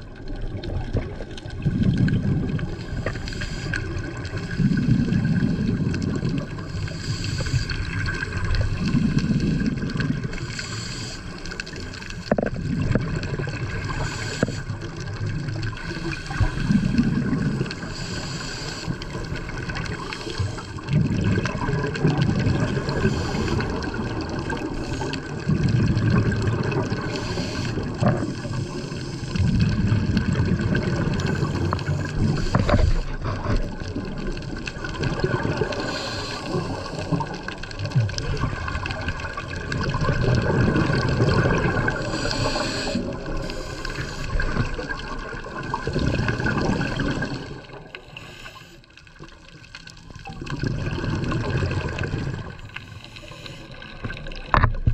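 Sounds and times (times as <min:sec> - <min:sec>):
exhaled bubbles rumbling underwater: 0:00.0 - 0:54.9
regulator inhalation hiss: 0:03.0 - 0:04.7, 0:06.8 - 0:08.0, 0:10.3 - 0:11.6, 0:14.0 - 0:14.8, 0:17.8 - 0:19.1, 0:27.1 - 0:29.4, 0:35.7 - 0:37.2, 0:41.9 - 0:44.6, 0:48.0 - 0:48.9, 0:52.6 - 0:53.9.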